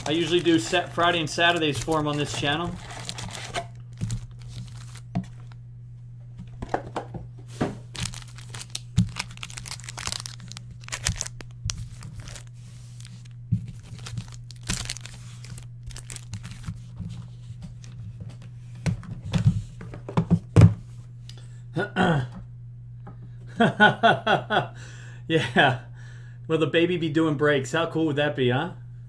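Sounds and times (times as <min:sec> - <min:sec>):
foil wrappers crinkling: 0:00.0 - 0:05.6, 0:07.8 - 0:17.2
steady low hum: 0:00.0 - 0:29.0.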